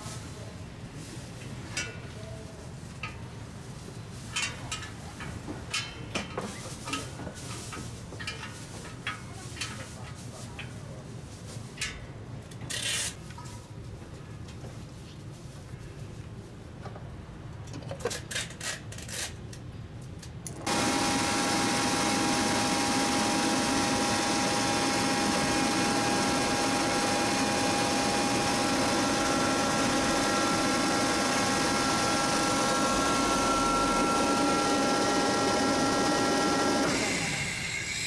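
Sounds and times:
air compressor running: 20.6 - 38.0.

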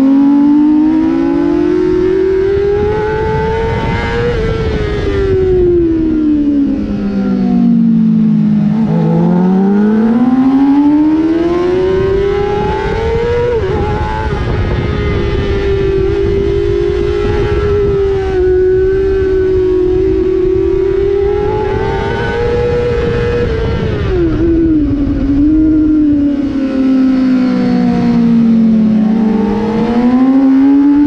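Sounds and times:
motorcycle engine revving: 0.0 - 31.0
wind noise: 0.0 - 31.0.

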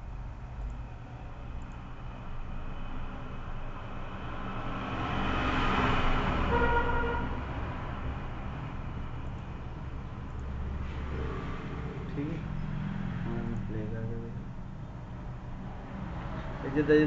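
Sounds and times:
steady low hum: 0.0 - 5.1
vehicle passing: 1.4 - 17.0
horn toot: 6.5 - 7.4.

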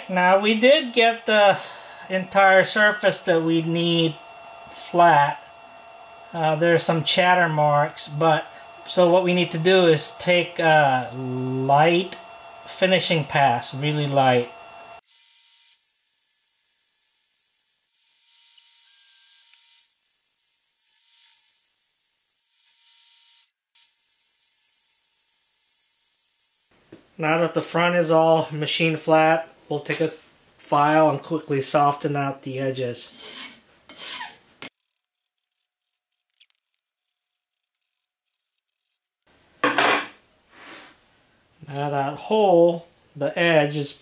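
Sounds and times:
milling machine cutting metal: 2.4 - 15.0
file scraping metal edge: 33.0 - 34.8.

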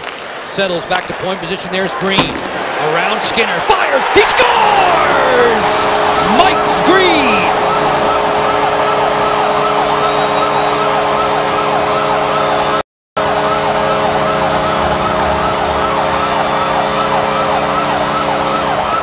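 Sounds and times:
crowd cheering: 0.6 - 12.8
siren-like wail: 3.9 - 19.0
goal horn chord: 4.9 - 8.5.

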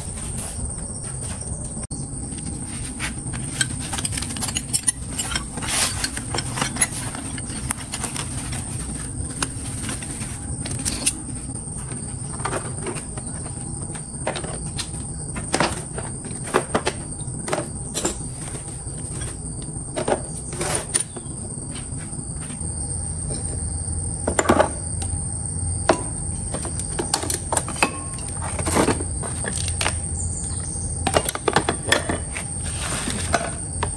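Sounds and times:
high-pitched whine: 0.0 - 33.9
metal tools clinking and rattling: 3.3 - 11.3.

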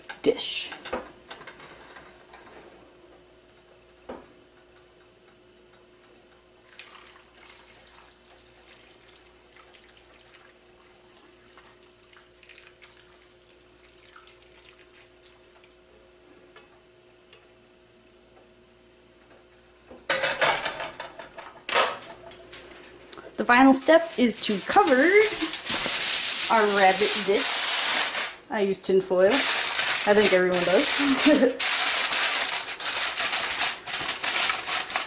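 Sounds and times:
broth trickling and splashing: 6.6 - 15.8.

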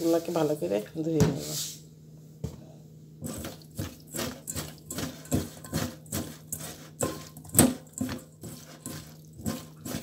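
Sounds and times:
hand scrubbing fish in colander: 3.2 - 10.0.

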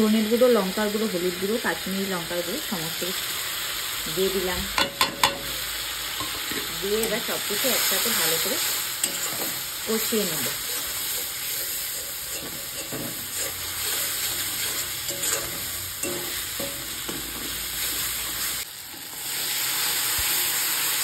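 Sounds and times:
paste sizzling in oil: 0.0 - 21.0
metal spatula scraping a pan: 4.8 - 18.6.

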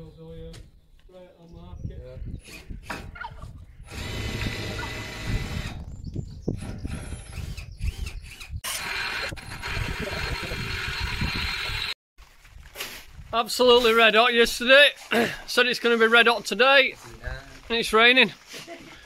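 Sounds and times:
drill boring through steel: 3.9 - 5.8.

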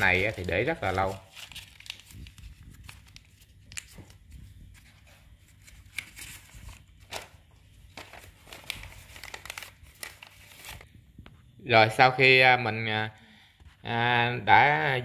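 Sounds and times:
paper crinkling and rustling: 0.0 - 10.9.

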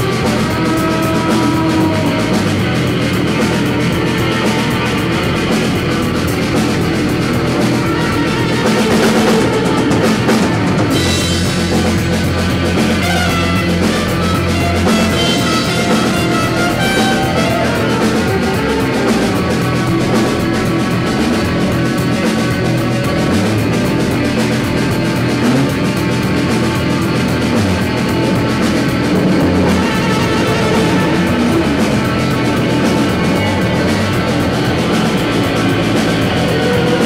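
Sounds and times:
live rock band playing: 0.0 - 37.0
low bass drone: 0.0 - 37.0.

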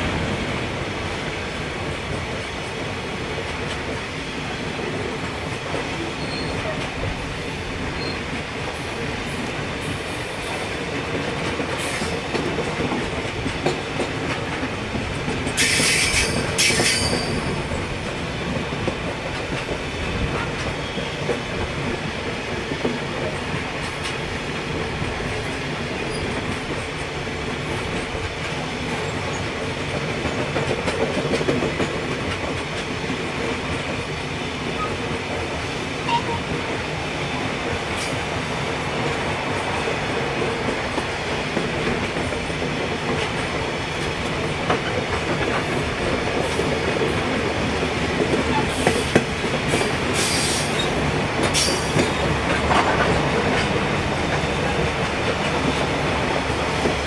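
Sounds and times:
freight train wheels rumbling: 0.0 - 57.0.

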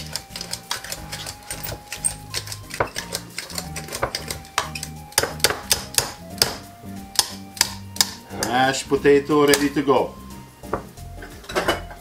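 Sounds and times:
potato masher clanking in pot: 0.0 - 6.2
background music: 0.0 - 12.0.

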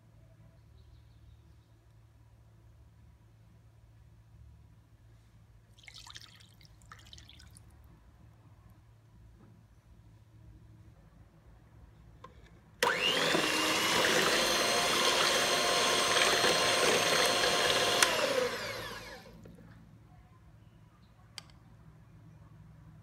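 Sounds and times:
electric hand mixer whirring: 12.8 - 19.4.

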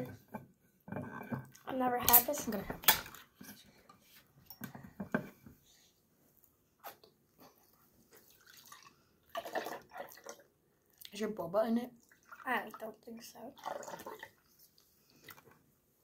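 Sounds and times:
liquid pouring into a glass: 8.2 - 10.5, 12.0 - 12.8, 13.6 - 14.5.

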